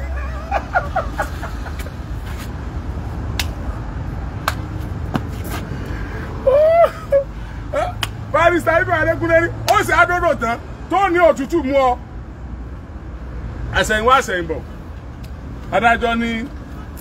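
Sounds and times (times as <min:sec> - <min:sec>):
man's loud exclamation: 0:06.4 - 0:08.6.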